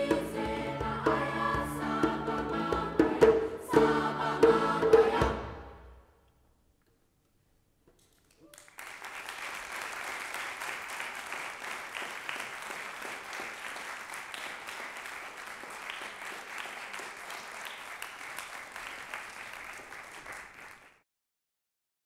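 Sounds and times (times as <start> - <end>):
audience applauding: 8.3 - 21.0.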